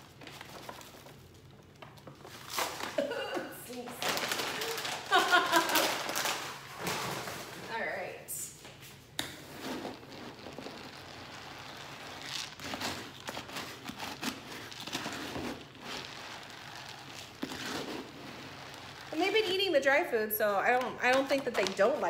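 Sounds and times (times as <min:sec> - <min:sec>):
bag crinkling: 0:00.0 - 0:07.9, 0:09.5 - 0:22.0.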